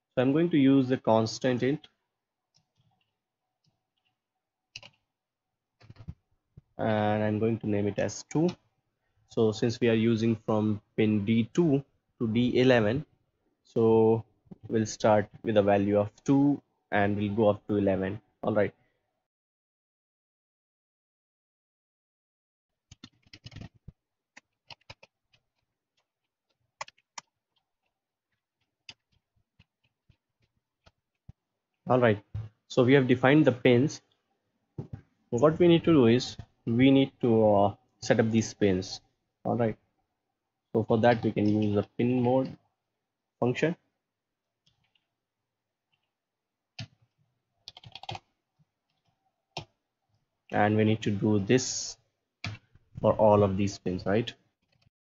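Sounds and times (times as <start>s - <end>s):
keyboard typing: 4.7s - 5.0s, 22.9s - 27.9s, 46.8s - 48.3s.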